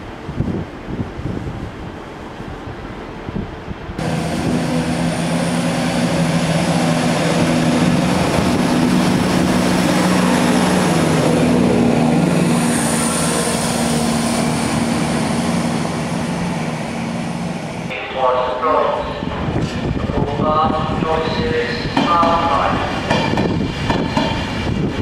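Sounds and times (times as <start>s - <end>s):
wind noise on microphone: 0.0s - 5.0s, 19.0s - 25.0s
train diesel engines droning: 1.4s - 25.0s.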